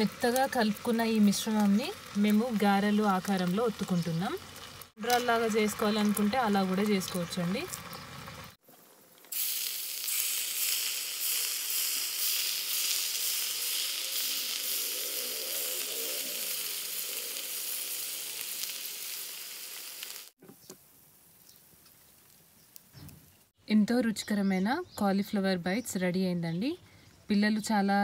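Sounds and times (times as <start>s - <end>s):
food deep-frying in oil: 0.0s - 20.4s.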